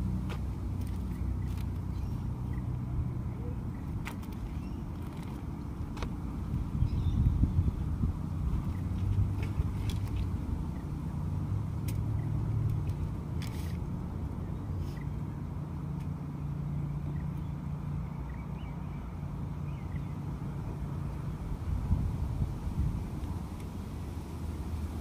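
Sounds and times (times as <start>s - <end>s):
low engine hum: 0.0s - 25.0s.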